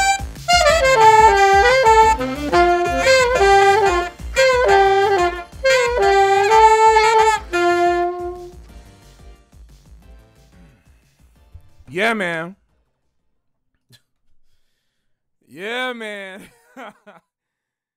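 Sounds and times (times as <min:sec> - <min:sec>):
saxophone jazz melody: 0:00.0 - 0:08.6
saxophonist breathing: 0:14.4 - 0:15.2.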